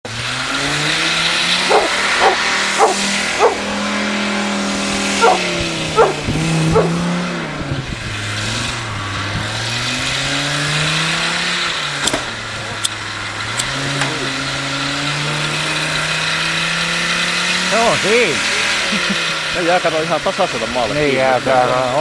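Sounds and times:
engine revving under load: 0:00.0 - 0:22.0
dog barking: 0:01.6 - 0:03.7, 0:05.2 - 0:07.0.

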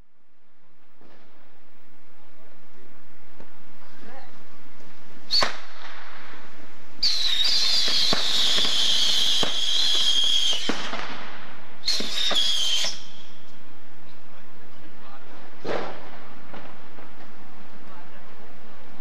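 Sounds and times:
firework cracks: 0:04.7 - 0:13.7, 0:15.0 - 0:18.3
firework whistling: 0:05.2 - 0:13.5.

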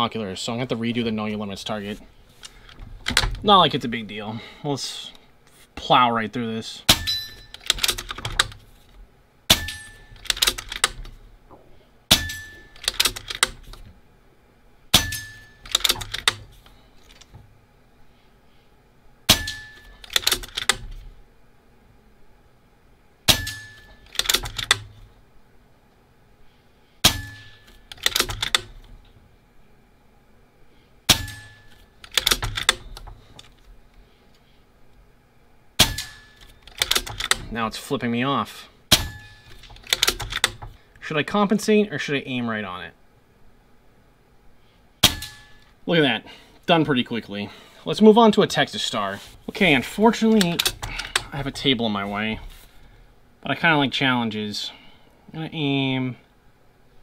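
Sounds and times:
steel target clanging: 0:06.9 - 0:07.8, 0:09.5 - 0:10.4, 0:12.1 - 0:13.1, 0:14.9 - 0:16.1, 0:19.3 - 0:20.0, 0:23.3 - 0:24.9, 0:27.0 - 0:27.9, 0:31.1 - 0:31.9, 0:35.8 - 0:36.6, 0:38.9 - 0:39.6, 0:45.0 - 0:45.7.

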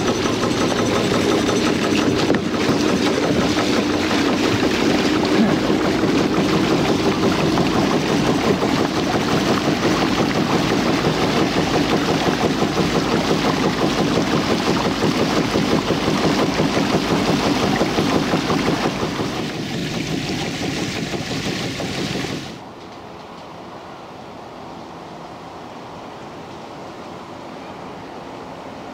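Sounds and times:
small boat engine pulsing: 0:00.0 - 0:22.8.

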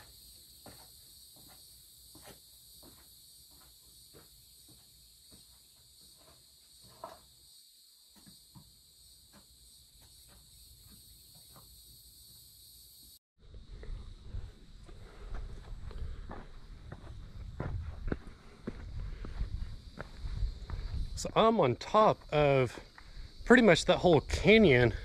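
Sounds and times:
insects chirring: 0:00.0 - 0:25.0
footsteps on rock: 0:15.3 - 0:21.4.

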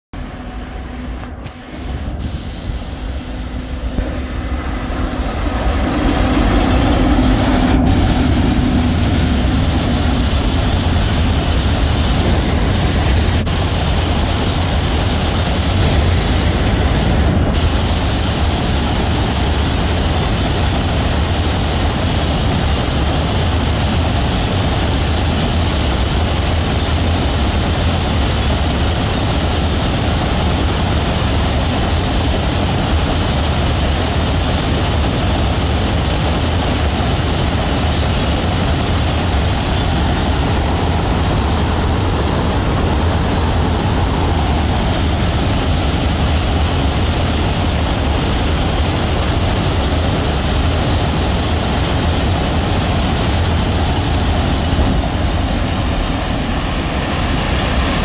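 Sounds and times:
wheels rumbling on rails: 0:00.1 - 0:58.0
electric locomotive humming: 0:00.2 - 0:58.0.

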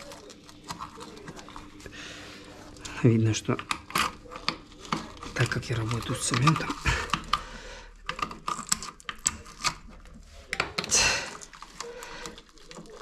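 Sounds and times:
screwdriver clicks and rattles: 0:08.0 - 0:09.8.

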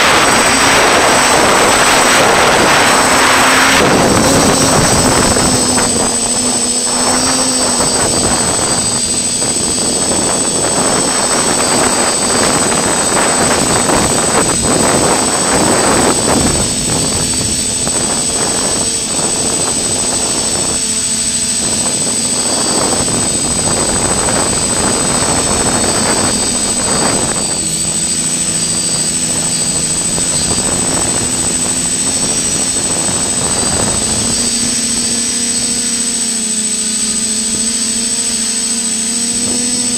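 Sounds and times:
air rushing over microphone: 0:00.0 - 0:20.8, 0:21.4 - 0:35.6
drone motors whining: 0:00.0 - 0:39.9
steady high-pitched whine: 0:00.0 - 0:39.9.

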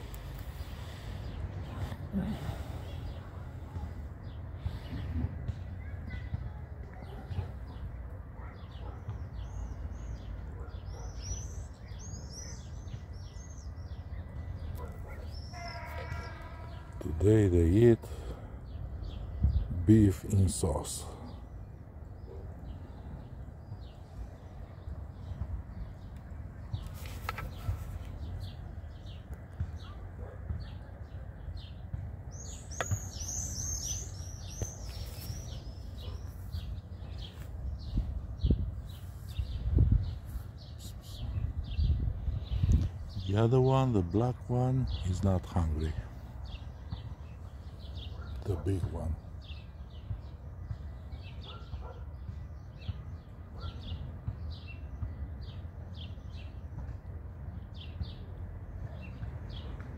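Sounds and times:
small birds chirping: 0:00.0 - 0:59.9
small bird chirping: 0:31.6 - 0:43.2.

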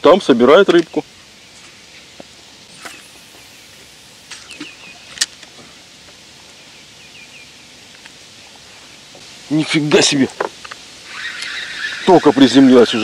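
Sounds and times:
outdoor background noise: 0:00.0 - 0:13.0
bird chirping: 0:00.8 - 0:05.4, 0:06.4 - 0:09.0
fishing reel clicks: 0:11.1 - 0:12.1.

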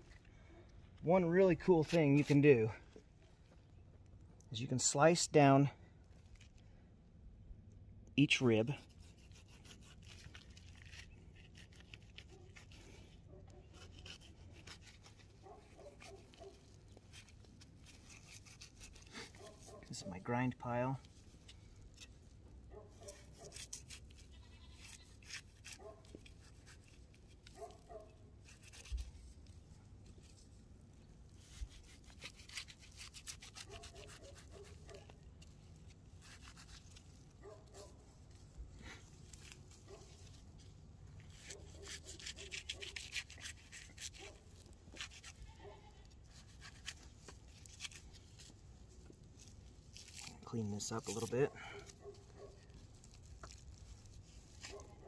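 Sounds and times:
knife scraping meat on bones: 0:08.8 - 0:20.0, 0:21.1 - 0:30.4, 0:31.3 - 0:48.6, 0:49.3 - 0:55.0.

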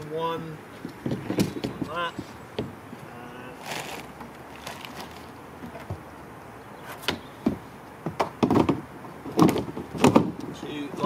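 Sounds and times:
plastic barrels knocking against canoe: 0:07.1 - 0:10.5.

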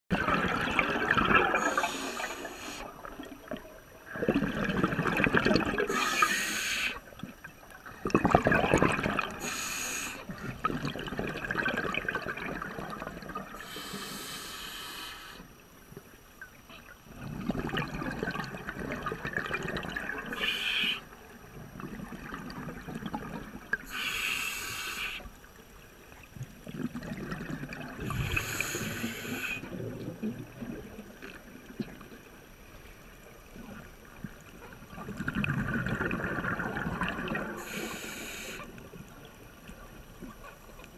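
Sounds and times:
gurgling exhaled bubbles: 0:00.1 - 0:06.4, 0:07.1 - 0:09.5, 0:10.3 - 0:13.8, 0:17.1 - 0:23.9, 0:26.4 - 0:32.1, 0:33.6 - 0:37.8
hissing regulator inhalation: 0:01.6 - 0:02.9, 0:05.9 - 0:07.0, 0:09.4 - 0:10.3, 0:13.6 - 0:15.4, 0:20.3 - 0:21.0, 0:23.9 - 0:25.3, 0:28.1 - 0:29.7, 0:37.6 - 0:38.7.

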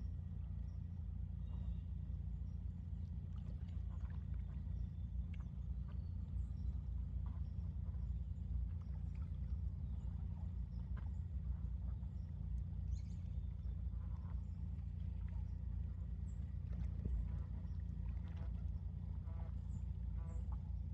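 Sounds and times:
steady low rumble: 0:00.0 - 0:20.9
ducks splashing in water: 0:16.6 - 0:19.6.

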